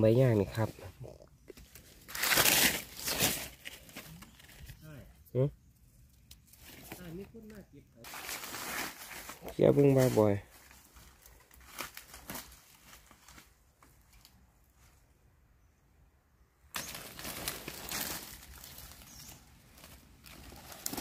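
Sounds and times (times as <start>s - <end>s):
dry leaves rustling and crackling: 1.6s - 4.9s, 6.4s - 14.4s, 16.7s - 21.0s.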